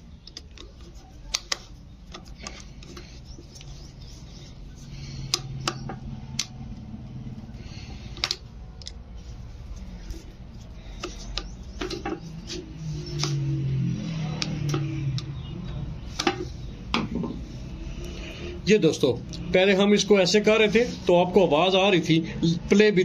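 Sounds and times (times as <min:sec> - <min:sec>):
screwdriver clicks and scrapes: 0:00.2 - 0:04.3, 0:08.1 - 0:09.0.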